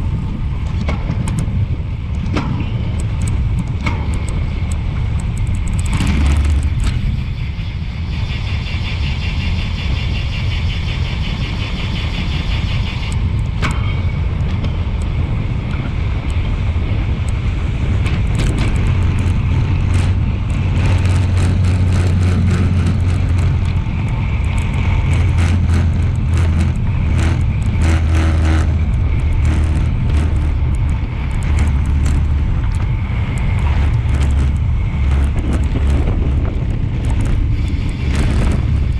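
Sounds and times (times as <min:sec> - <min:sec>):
wind buffeting microphone: 0:00.0 - 0:38.9
sharp clicks: 0:02.1 - 0:07.2, 0:18.0 - 0:38.9
fast even ticking: 0:18.2 - 0:38.9.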